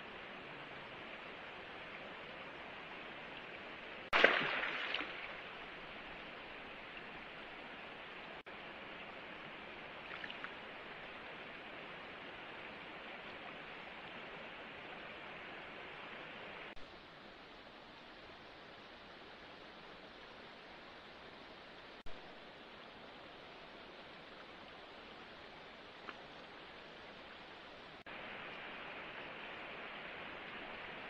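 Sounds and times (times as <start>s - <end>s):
running water rushing: 0.0s - 16.8s, 19.8s - 31.0s.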